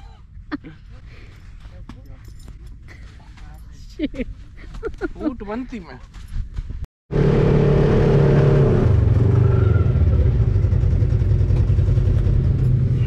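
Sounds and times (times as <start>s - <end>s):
dune buggy engine running: 7.1s - 13.0s.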